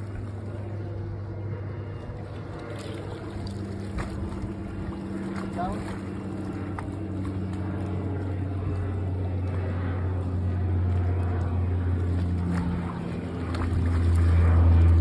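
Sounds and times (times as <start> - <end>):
low engine hum: 0.0 - 15.0.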